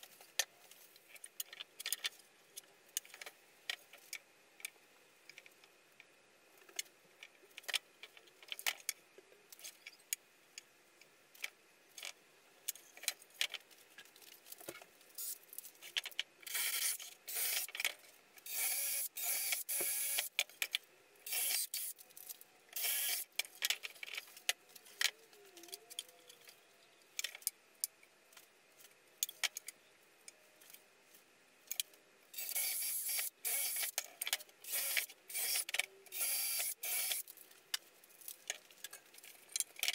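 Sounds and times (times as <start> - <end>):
cordless drill boring into wood: 16.5 - 17.7, 18.5 - 20.3, 21.3 - 21.9, 22.8 - 23.2, 32.4 - 33.9, 34.7 - 37.2.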